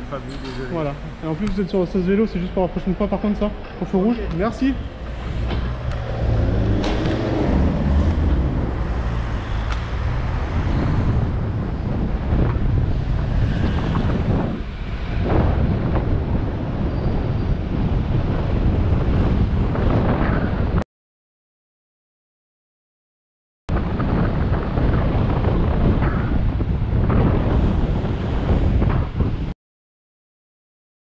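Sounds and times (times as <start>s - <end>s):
car and van traffic: 0.0s - 20.7s
wind on microphone: 3.5s - 20.8s, 23.7s - 29.6s.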